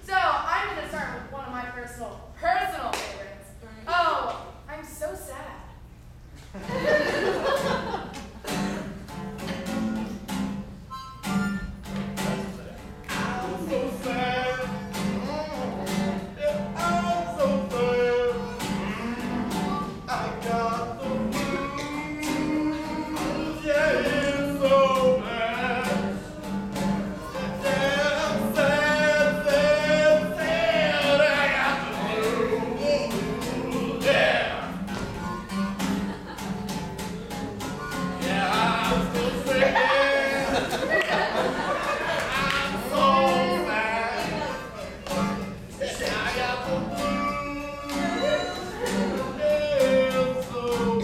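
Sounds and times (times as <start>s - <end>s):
acoustic guitar strumming: 6.6s - 51.0s
person singing: 13.1s - 34.3s, 37.8s - 41.0s, 42.3s - 44.6s, 45.2s - 51.0s.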